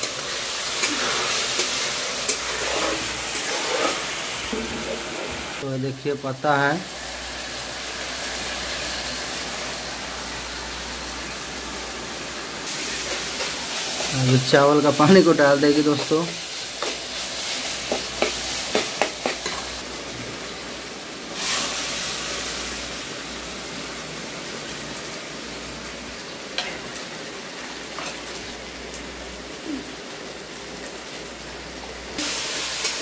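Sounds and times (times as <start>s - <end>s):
water sizzling in hot pan: 0.0s - 33.0s
metal spatula scraping pan: 0.1s - 5.4s.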